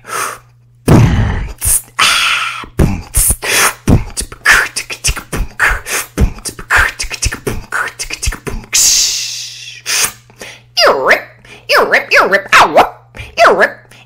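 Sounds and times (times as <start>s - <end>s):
woman beatboxing: 0.9s - 10.2s.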